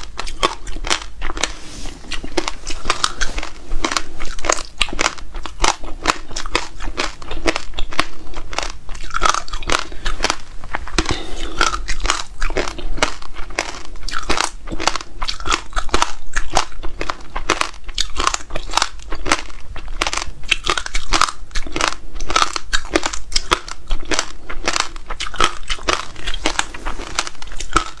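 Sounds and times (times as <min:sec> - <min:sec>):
person chewing crunchy seeds: 0:00.0 - 0:28.0.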